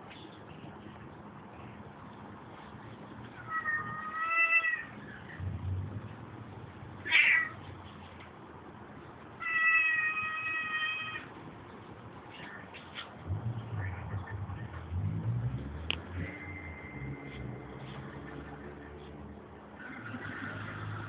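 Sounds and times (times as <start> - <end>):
cat meowing: 3.4 - 5.0, 7.0 - 7.6, 9.4 - 11.3.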